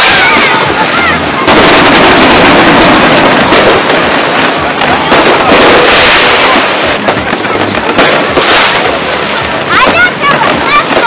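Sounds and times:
fireworks cracking and banging: 0.0 - 11.0.

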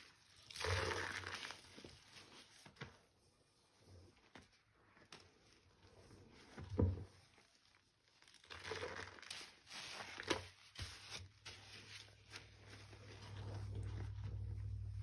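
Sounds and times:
wet lather squelching: 0.2 - 1.8, 7.7 - 10.2
low steady hum: 12.3 - 15.0.

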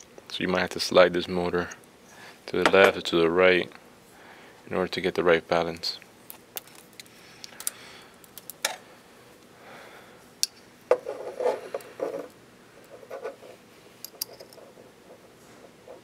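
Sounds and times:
metal parts clicking and rubbing: 11.0 - 15.2.

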